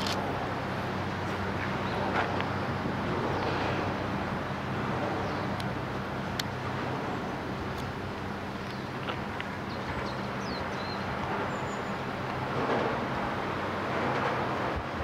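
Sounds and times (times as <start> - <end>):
low engine hum: 0.0 - 15.0
wind noise: 8.8 - 15.0.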